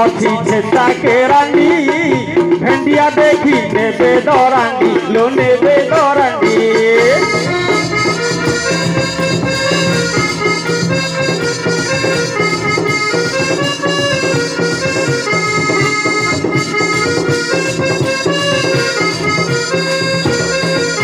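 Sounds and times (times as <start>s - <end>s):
steady musical accompaniment: 0.0s - 21.0s
reed instrument melody: 4.3s - 21.0s.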